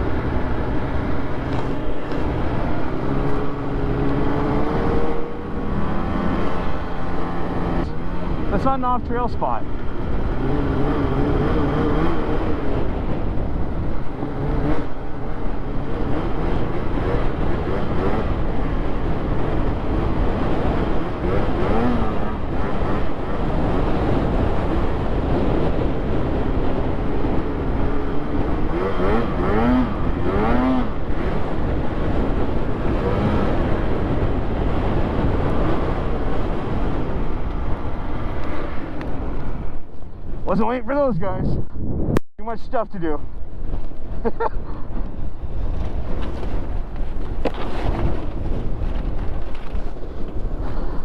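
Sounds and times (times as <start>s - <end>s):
snowmobile two-stroke engine: 0.0s - 37.4s.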